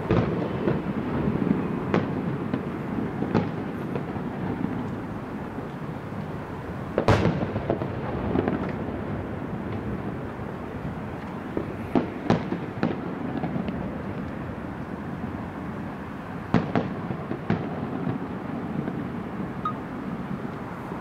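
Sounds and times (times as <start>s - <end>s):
fireworks bangs: 0.0s - 5.9s, 6.9s - 10.4s, 11.1s - 14.3s, 16.4s - 20.5s
low background noise: 0.0s - 21.0s.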